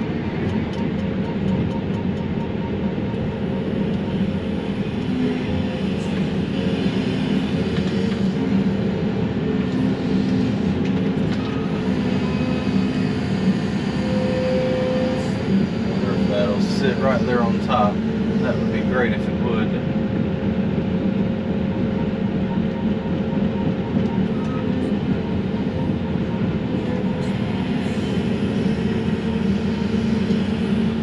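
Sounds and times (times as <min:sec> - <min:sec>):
excavator engine and hydraulics: 0:00.0 - 0:31.0
high hydraulic whine: 0:00.0 - 0:31.0.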